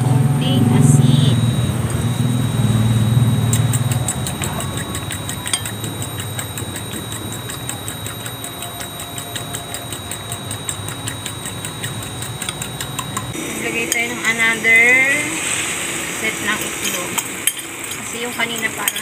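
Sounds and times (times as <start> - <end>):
engine running: 0.0 - 19.0
fast light ticking: 1.3 - 13.4.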